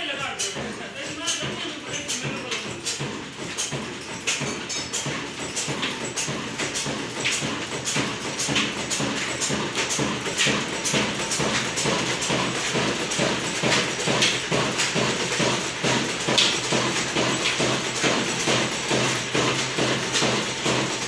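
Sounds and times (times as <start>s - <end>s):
stationary diesel engine knocking: 0.0s - 21.0s.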